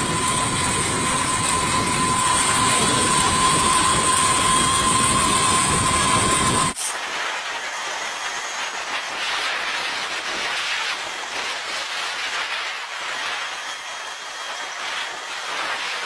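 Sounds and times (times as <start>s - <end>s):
aircraft turbine hiss: 0.0s - 16.0s.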